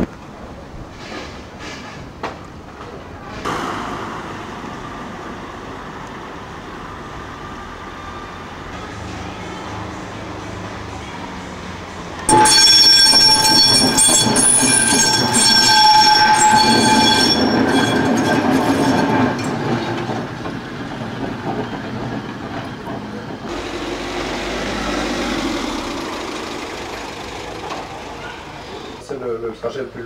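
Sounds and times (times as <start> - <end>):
tram wheels rumbling on rails: 0.0 - 29.4
tram wheels squealing: 0.9 - 2.2, 7.0 - 29.1.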